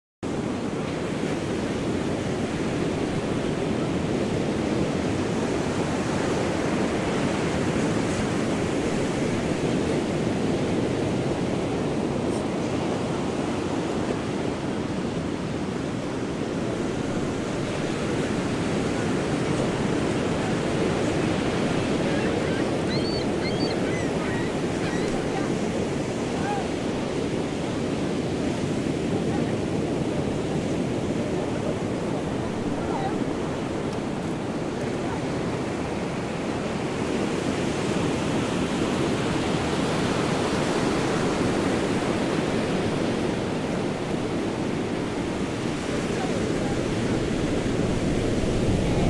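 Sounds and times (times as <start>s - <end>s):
ocean surf washing onto beach: 0.3s - 49.0s.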